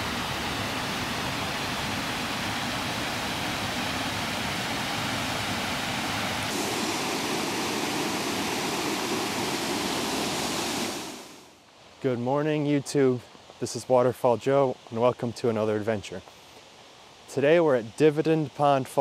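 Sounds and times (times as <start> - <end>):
waterfall rushing over rocks: 0.0 - 11.6.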